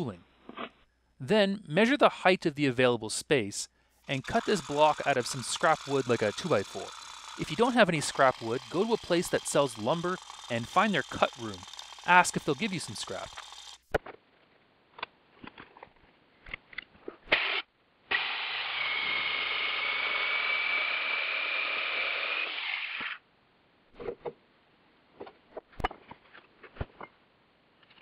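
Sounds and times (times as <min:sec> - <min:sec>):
electric jigsaw cutting wood: 0:04.1 - 0:13.9, 0:17.3 - 0:23.2.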